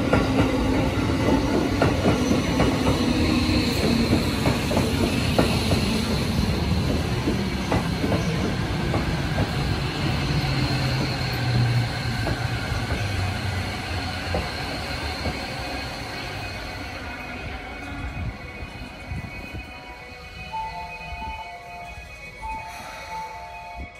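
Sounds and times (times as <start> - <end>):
train wheels rumbling on rails: 0.0 - 23.9.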